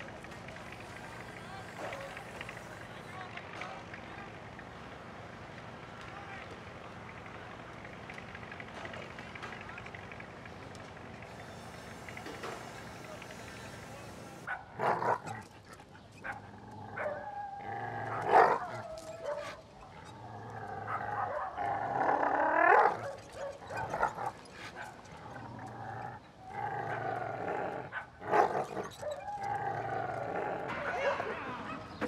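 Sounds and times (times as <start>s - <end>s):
dog growling: 0.0s - 3.1s, 11.2s - 32.0s.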